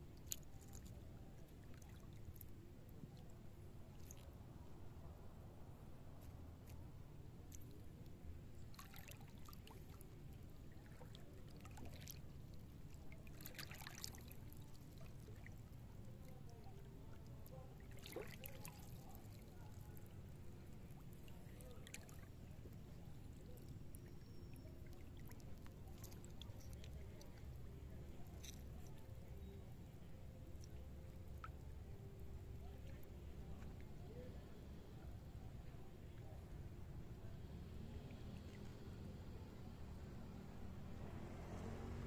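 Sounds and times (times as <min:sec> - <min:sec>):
low steady rumble: 0:00.0 - 0:42.0
seawater splashing and sloshing: 0:08.6 - 0:27.5.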